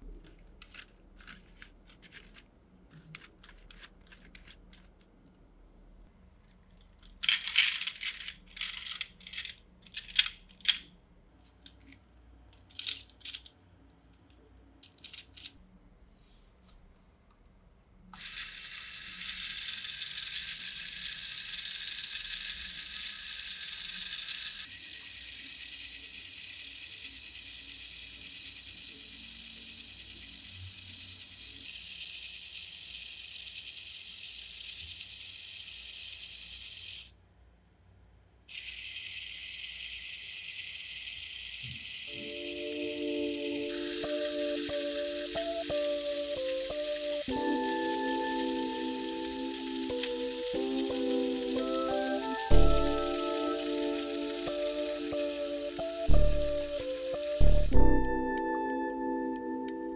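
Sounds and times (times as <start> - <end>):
plastic bricks clattering: 7.0 - 10.9
electric motor whirring: 38.5 - 58.3.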